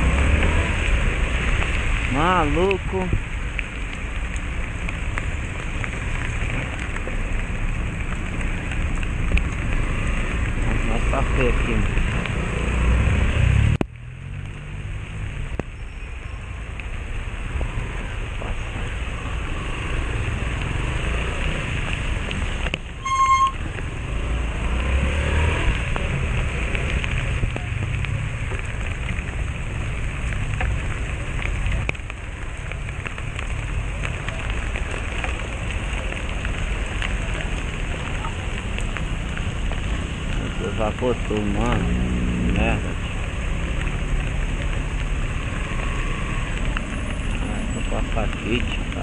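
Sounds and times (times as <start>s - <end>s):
rain and wind hiss: 0.0s - 49.0s
horn beep: 23.0s - 23.6s.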